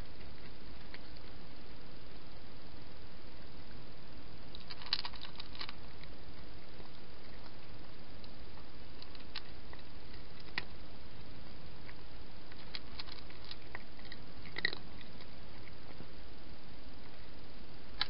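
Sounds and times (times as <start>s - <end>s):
cat eating crunching: 0.0s - 1.7s, 4.5s - 10.8s, 11.8s - 16.0s
steady hiss: 0.0s - 18.0s.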